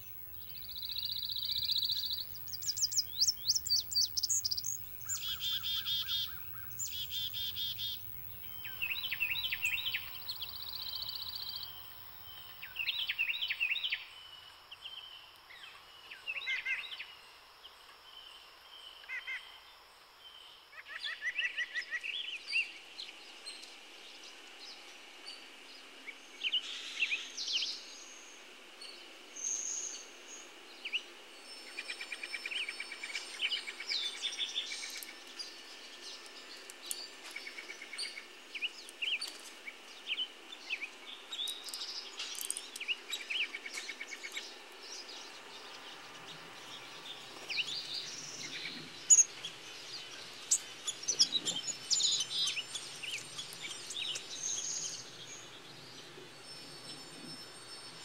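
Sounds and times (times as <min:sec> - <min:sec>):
bird trill: 0:00.0 - 0:13.8
songbirds chirping: 0:00.0 - 0:20.7, 0:21.7 - 0:58.0
faint steady hiss: 0:00.0 - 0:58.0.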